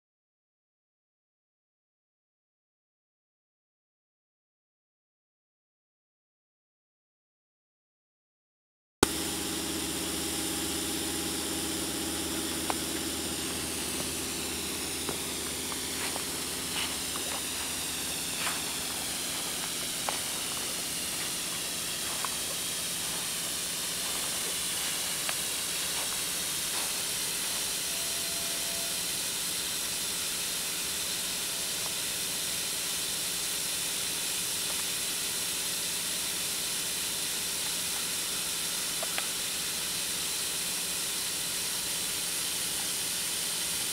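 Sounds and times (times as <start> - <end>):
low hum: 9.0 - 32.9
snow gun hissing: 9.0 - 43.9.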